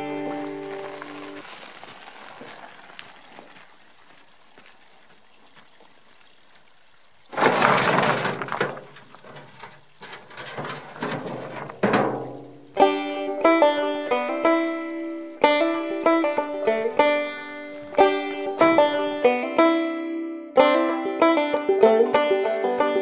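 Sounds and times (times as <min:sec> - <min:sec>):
banjo music: 0:00.0 - 0:01.4, 0:07.4 - 0:23.0
rocks clattering in a wheelbarrow: 0:00.0 - 0:03.6, 0:07.3 - 0:19.4.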